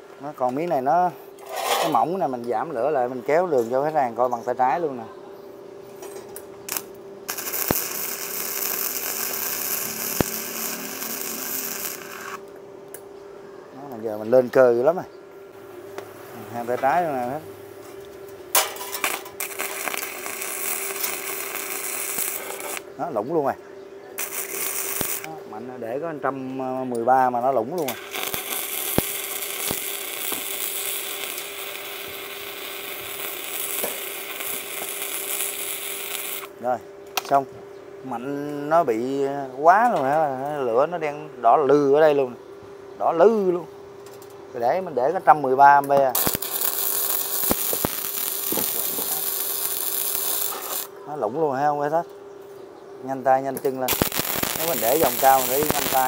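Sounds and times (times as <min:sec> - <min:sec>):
faint steady hum: 0:00.0 - 0:56.0
welder arc crackling: 0:06.6 - 0:13.0, 0:15.9 - 0:23.5, 0:24.2 - 0:37.4, 0:44.9 - 0:51.0, 0:53.2 - 0:56.0
sharp pops: 0:53.6 - 0:56.0.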